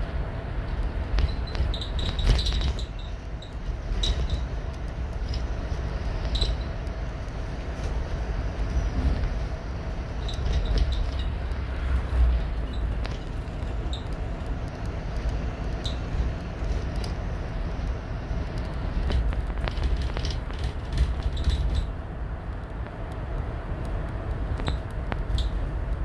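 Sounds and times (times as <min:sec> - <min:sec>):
bus cabin rumble: 0:00.0 - 0:26.0
rattles and clicks: 0:00.0 - 0:26.0
high squeaks: 0:01.3 - 0:04.5.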